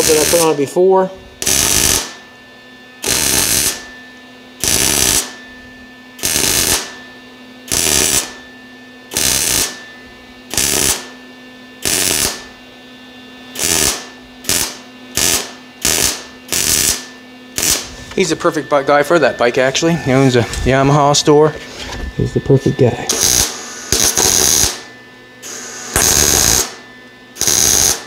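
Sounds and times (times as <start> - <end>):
welder arc bursts: 0.0 - 2.2, 3.0 - 3.9, 4.6 - 5.4, 6.2 - 6.9, 7.7 - 8.4, 9.1 - 9.8, 10.5 - 11.1, 11.8 - 12.5, 13.5 - 21.2, 23.1 - 24.8, 25.4 - 26.8, 27.4 - 28.0.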